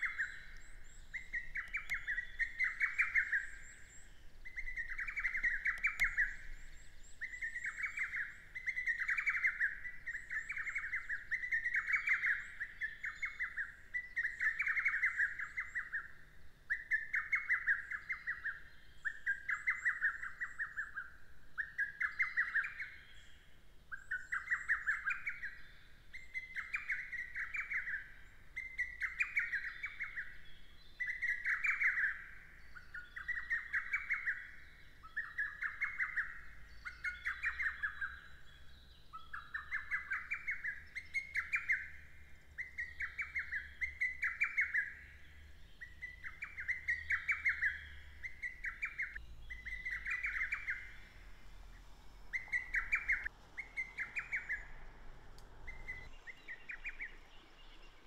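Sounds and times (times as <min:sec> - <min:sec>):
cuckoo singing: 0:00.0 - 0:06.6, 0:45.8 - 0:51.2, 0:52.3 - 0:57.3.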